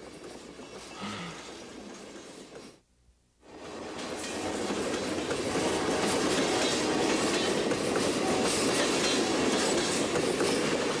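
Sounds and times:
train wheels clattering over rails: 0.0 - 2.8, 3.5 - 11.0.

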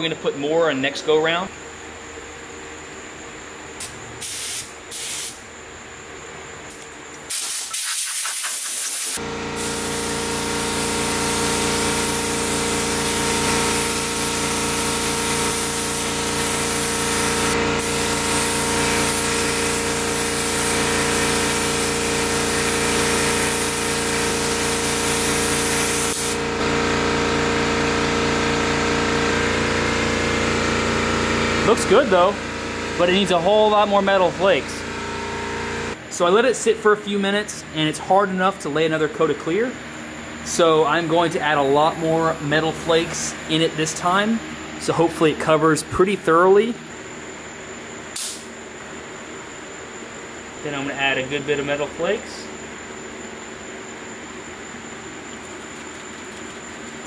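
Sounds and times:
spray gun hissing: 4.2 - 5.4, 7.3 - 26.4
steady machine hum: 9.2 - 57.0.

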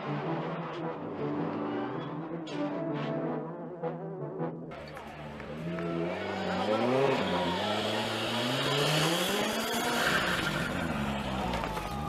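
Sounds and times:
car engine revving hard: 5.7 - 11.5.

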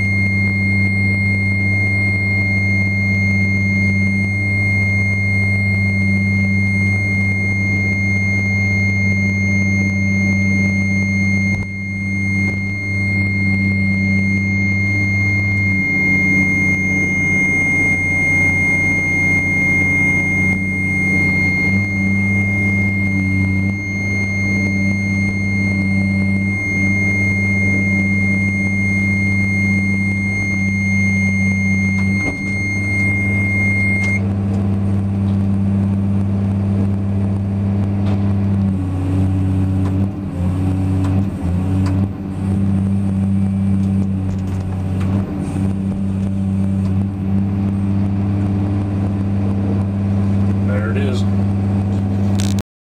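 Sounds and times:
high-pitched warning buzzer: 0.0 - 34.4
excavator diesel engine running: 0.0 - 52.6.

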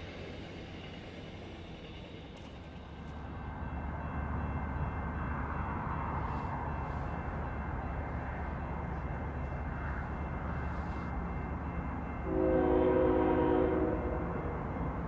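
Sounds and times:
train rumbling past: 0.0 - 15.0
locomotive air horn chord: 12.2 - 14.4.

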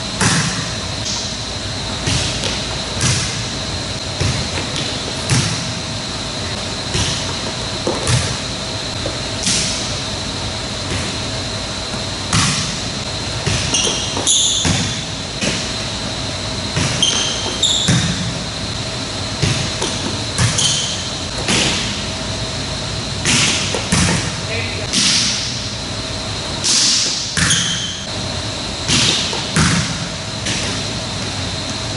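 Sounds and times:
steady hum: 0.0 - 31.9
shoes squeaking on court floor: 13.4 - 15.9, 16.7 - 18.4, 19.4 - 21.9, 27.0 - 28.1.

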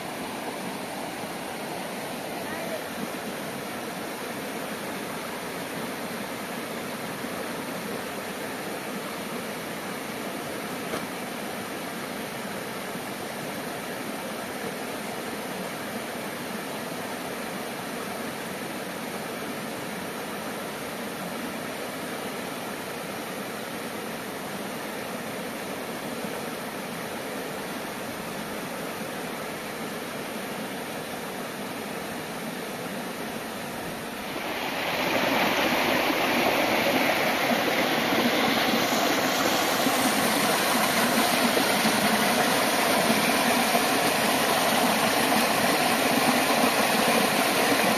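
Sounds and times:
stream rushing over stones: 0.0 - 47.9
white water pouring over rock: 34.0 - 47.9.

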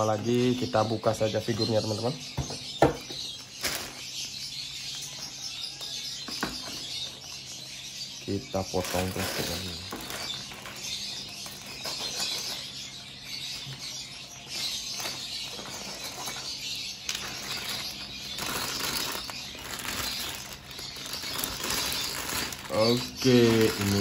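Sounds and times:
plastic bag crinkling: 3.2 - 4.2, 8.6 - 12.8, 14.6 - 24.0.

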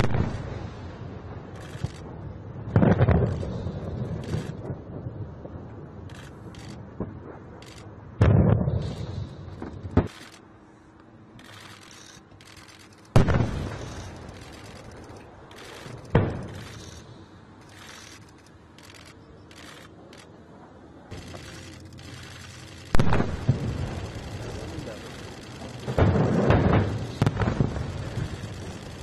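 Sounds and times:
distant explosion booms: 0.0 - 7.6, 8.2 - 10.1, 13.2 - 14.6, 15.8 - 16.8, 22.9 - 29.0.

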